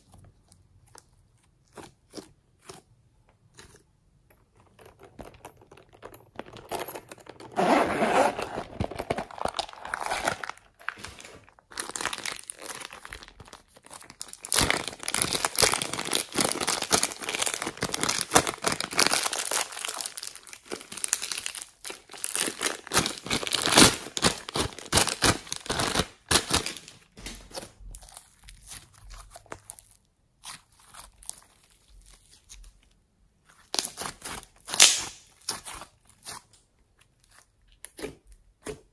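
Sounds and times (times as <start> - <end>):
plastic bag crinkling and tearing: 7.5 - 30.0, 33.7 - 36.1.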